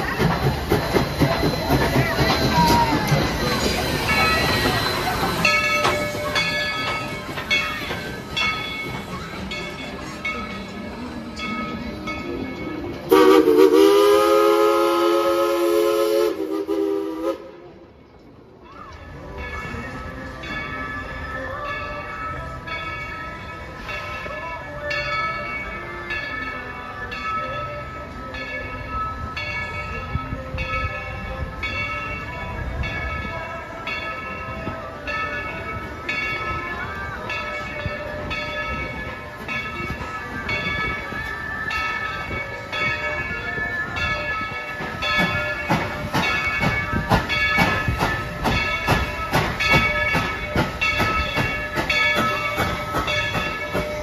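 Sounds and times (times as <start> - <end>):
locomotive bell ringing: 0.0 - 17.3, 18.3 - 54.0
steam whistle chord: 13.1 - 17.6.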